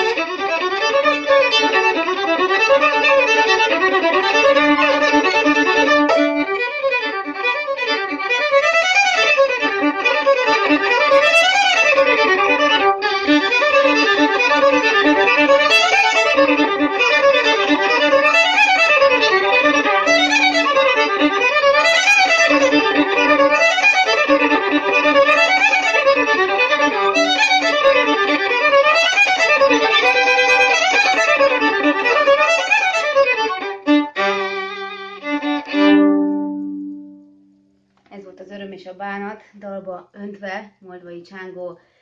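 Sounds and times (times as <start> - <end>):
solo violin folk tune: 0.0 - 37.7
low drone note: 5.8 - 6.7.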